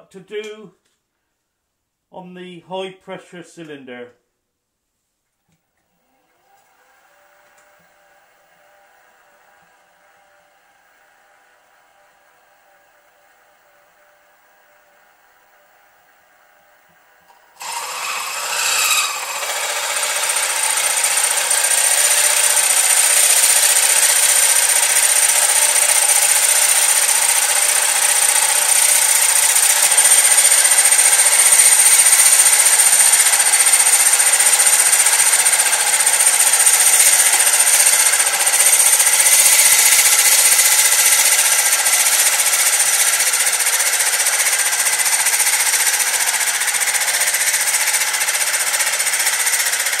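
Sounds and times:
milling machine cutting metal: 0:17.6 - 0:50.0.

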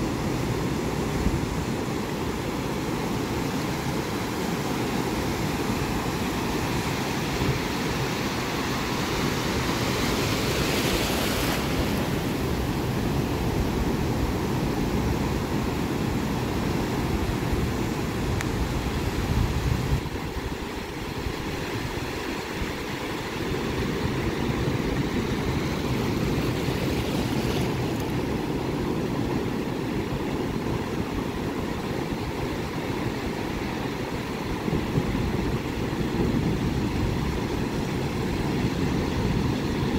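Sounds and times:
surf waves breaking: 0:00.0 - 0:39.9.

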